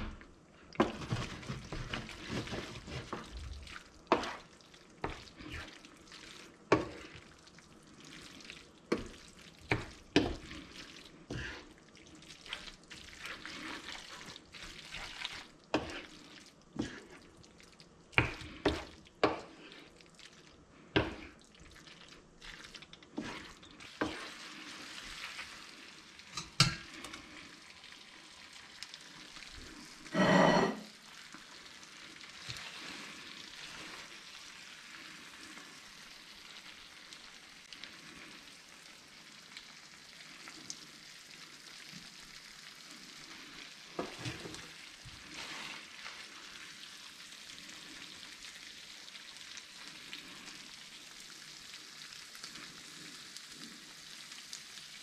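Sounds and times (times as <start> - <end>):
food sizzling in a frying pan: 0.8 - 55.0.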